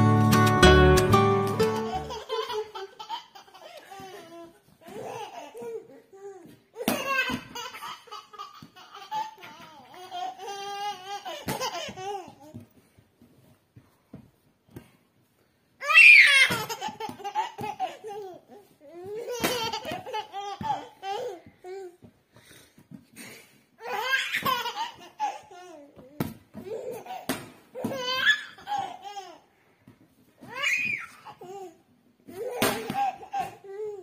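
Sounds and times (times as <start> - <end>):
baby laughing: 1.4 - 6.0, 6.8 - 12.6, 15.8 - 21.5, 23.8 - 26.0, 26.6 - 29.5, 30.5 - 34.0.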